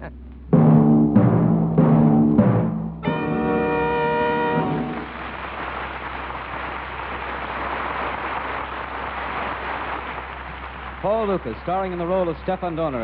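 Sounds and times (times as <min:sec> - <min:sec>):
orchestral chord: 0:03.0 - 0:05.4
record surface hiss and crackle: 0:03.0 - 0:13.0.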